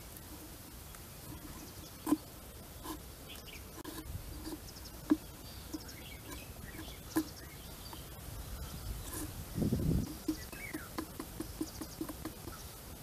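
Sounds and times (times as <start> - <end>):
birds chirping faintly: 0.0 - 13.0
sticks clicking through gourd rind: 1.2 - 8.1, 9.0 - 12.6.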